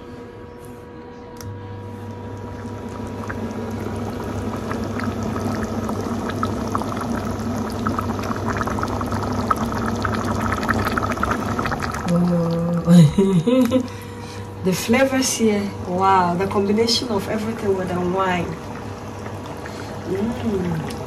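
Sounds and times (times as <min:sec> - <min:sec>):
low hum: 0:00.0 - 0:21.0
sauce bubbling in a pan: 0:02.1 - 0:12.7, 0:16.4 - 0:21.0.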